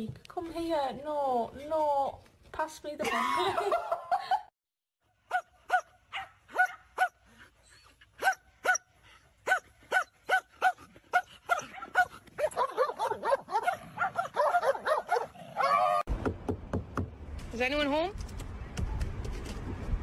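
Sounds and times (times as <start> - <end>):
dog barking high-pitched: 5.3 - 7.2, 8.2 - 16.0.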